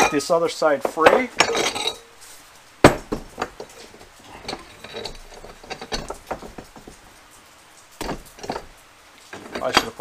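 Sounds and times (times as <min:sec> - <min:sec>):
tire handling clicks and scrapes: 0:00.0 - 0:10.0
wheel knocking on metal: 0:02.8 - 0:07.1, 0:08.0 - 0:08.8.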